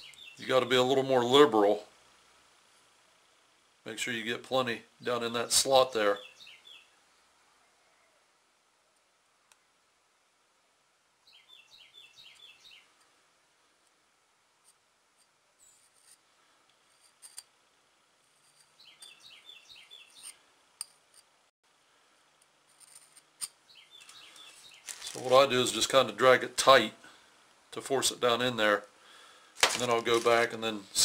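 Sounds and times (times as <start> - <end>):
small bird chirping: 0.0 - 0.5, 6.1 - 8.2, 11.2 - 13.1, 18.4 - 20.5, 23.6 - 25.1.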